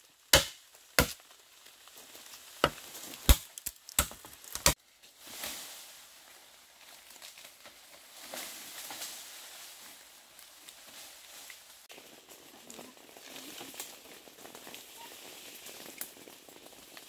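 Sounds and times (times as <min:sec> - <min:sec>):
blade chopping bamboo: 0:00.3 - 0:01.2, 0:02.6 - 0:04.8.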